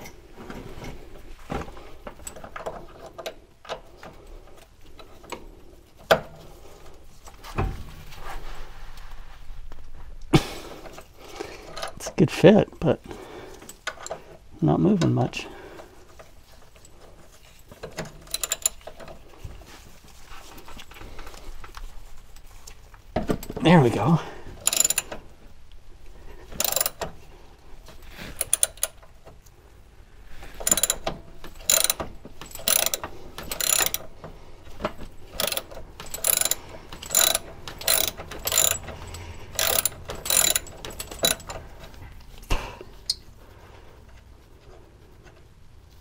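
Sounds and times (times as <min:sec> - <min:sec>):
socket ratchet clicking: 0:18.0 - 0:19.0, 0:24.6 - 0:25.2, 0:26.6 - 0:27.1, 0:28.3 - 0:29.0, 0:30.6 - 0:34.2, 0:35.3 - 0:41.7.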